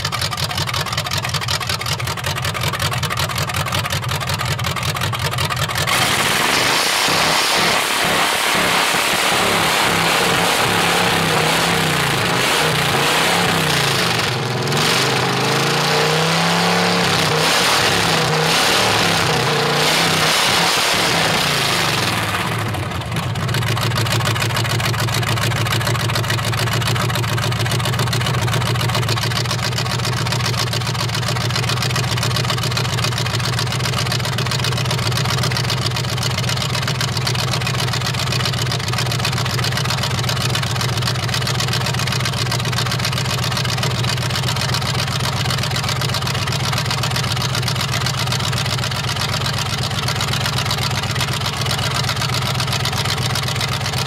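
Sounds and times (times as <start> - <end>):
engine fast idle: 0.0 - 15.7, 20.5 - 54.0
truck engine revving: 5.8 - 23.1.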